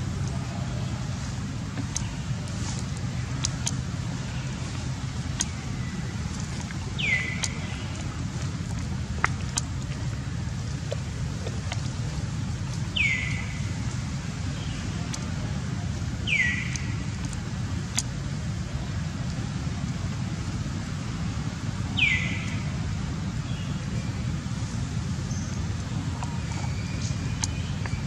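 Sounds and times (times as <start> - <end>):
steady low rumble: 0.0 - 28.0.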